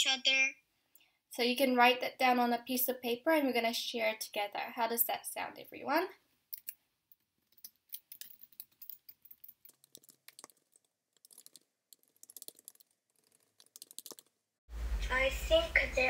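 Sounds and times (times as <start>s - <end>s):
computer keyboard typing: 7.9s - 14.4s.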